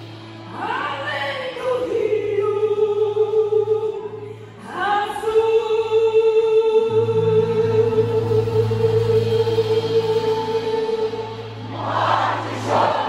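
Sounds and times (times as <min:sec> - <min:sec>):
live band playing: 0:06.9 - 0:13.0
choir singing held chords: 0:07.0 - 0:13.0.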